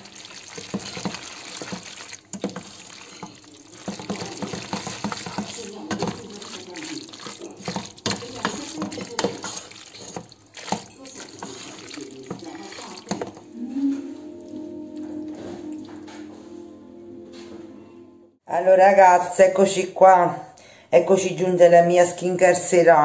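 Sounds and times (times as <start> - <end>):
spoon scraping and knocking pot: 0.0 - 13.5
squelching pasta stirring: 0.0 - 16.4.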